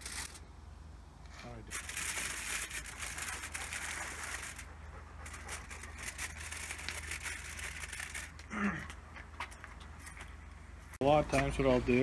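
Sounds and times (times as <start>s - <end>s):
tin foil crinkling: 0.0s - 0.4s, 1.7s - 9.0s.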